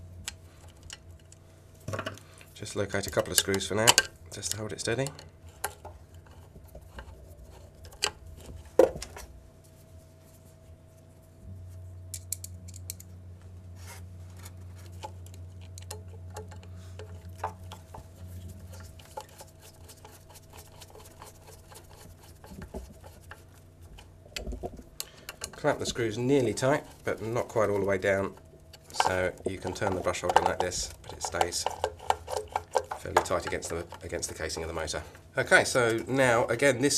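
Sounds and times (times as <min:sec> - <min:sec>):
low steady hum: 0:00.0 - 0:36.9
screwdriver metal clicks and scrapes: 0:12.1 - 0:13.1, 0:25.0 - 0:34.4.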